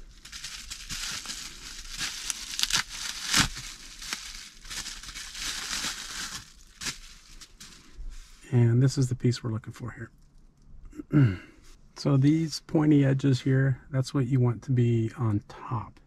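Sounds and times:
bubble wrap crinkling: 0:00.0 - 0:08.4.

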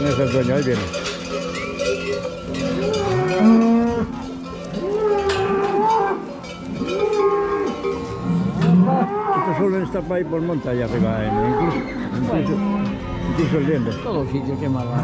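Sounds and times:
cowbells ringing: 0:00.0 - 0:15.0
cattle mooing: 0:02.6 - 0:09.9, 0:10.9 - 0:13.8.

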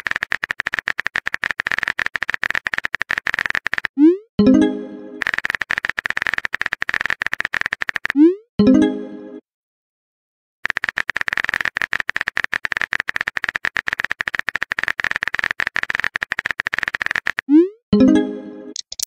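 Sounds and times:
phone keyboard typing clicks: 0:00.0 - 0:04.0, 0:05.2 - 0:08.2, 0:10.6 - 0:17.5, 0:18.8 - 0:19.0.

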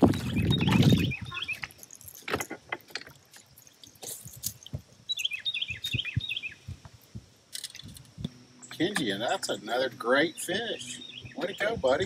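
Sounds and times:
bird chirping: 0:00.0 - 0:02.1, 0:03.3 - 0:06.8, 0:08.4 - 0:12.0.

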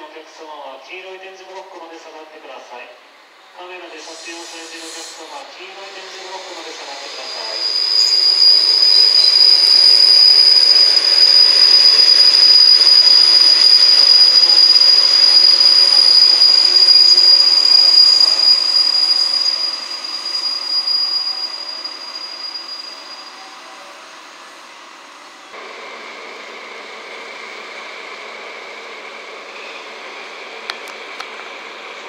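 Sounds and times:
rail noise: 0:01.4 - 0:32.0
train wheels squealing: 0:03.9 - 0:25.5, 0:29.3 - 0:30.4.

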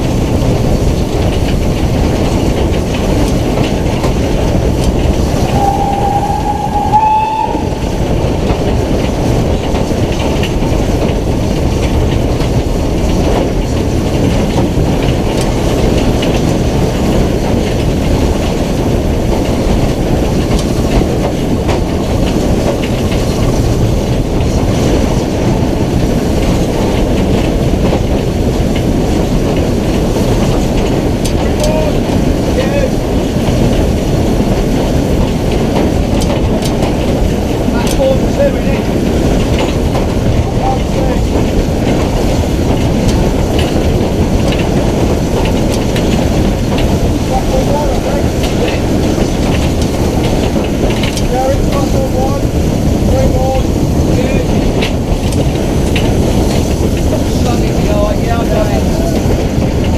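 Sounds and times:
steam locomotive rumbling on rails: 0:00.0 - 0:59.9
wind on microphone: 0:00.0 - 0:59.9
locomotive whistle: 0:05.4 - 0:08.0.

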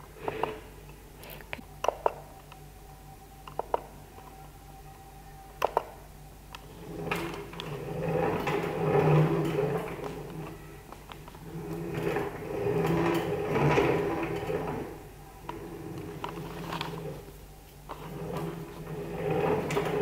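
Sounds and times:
steady low hum: 0:00.0 - 0:20.0
robot arm motors whirring: 0:06.5 - 0:20.0.

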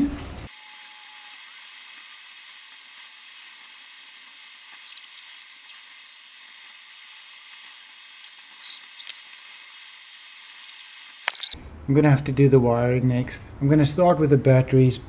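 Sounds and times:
small squeaks and taps: 0:04.8 - 0:05.8, 0:08.6 - 0:09.4, 0:10.7 - 0:11.6.

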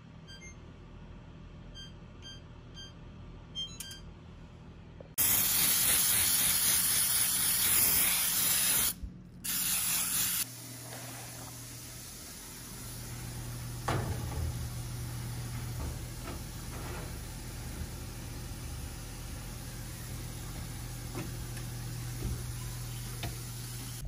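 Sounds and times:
aerosol spray hissing: 0:05.2 - 0:10.5.

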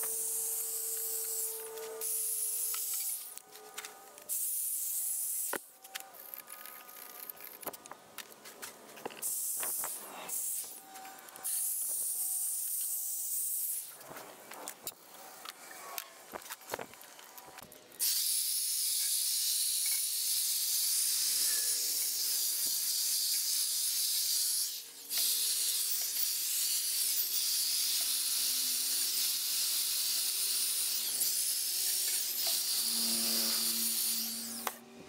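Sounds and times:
air blow gun hissing: 0:00.0 - 0:03.3, 0:09.2 - 0:10.8, 0:18.0 - 0:34.8.

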